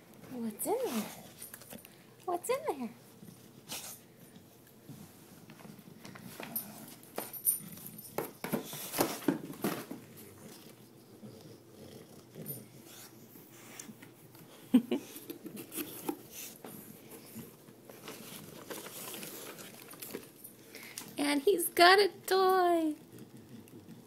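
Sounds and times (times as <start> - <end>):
dog sniffing and wheezing: 3.6 - 4.2, 15.0 - 17.4
paper and cardboard rustling: 17.2 - 20.4.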